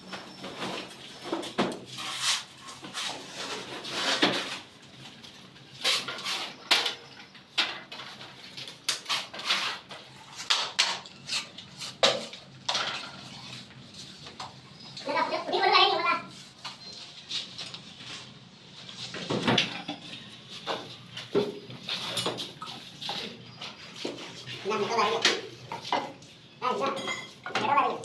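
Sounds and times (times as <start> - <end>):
metal tools scraping mortar: 8.9 - 12.4.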